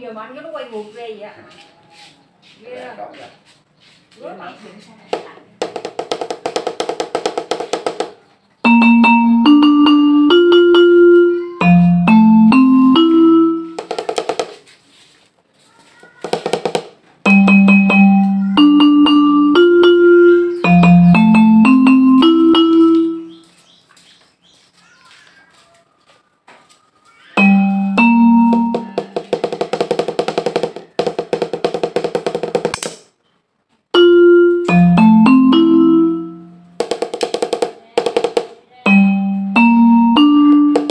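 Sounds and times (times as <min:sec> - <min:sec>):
mallet-like electronic notes: 0:08.7 - 0:13.8, 0:17.3 - 0:23.4, 0:27.4 - 0:29.3, 0:34.0 - 0:36.8, 0:38.9 - 0:40.9.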